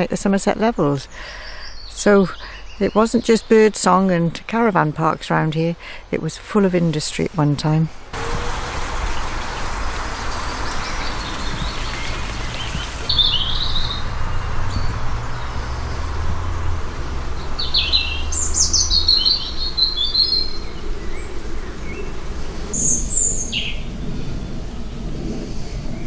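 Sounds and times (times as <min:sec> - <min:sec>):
songbirds singing: 0:00.0 - 0:26.0
low steady rumble: 0:08.1 - 0:26.0.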